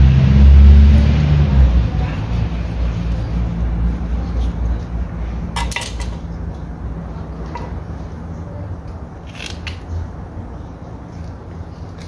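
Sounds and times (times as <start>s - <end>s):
low hum: 0.0s - 7.3s
knife clinking on concrete: 5.6s - 6.2s.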